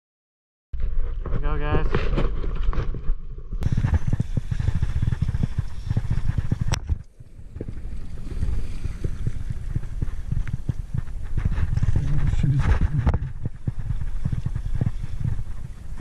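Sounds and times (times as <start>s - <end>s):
low knocks and rumbles: 0.8s - 16.0s
river water sloshing and splashing: 7.1s - 10.9s.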